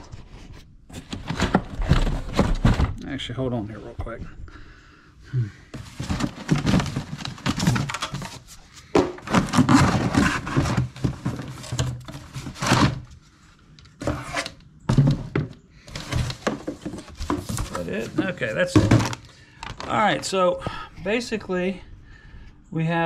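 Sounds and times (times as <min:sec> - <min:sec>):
cardboard box rustling and scraping: 0:00.0 - 0:03.0, 0:05.8 - 0:13.3, 0:14.0 - 0:19.2.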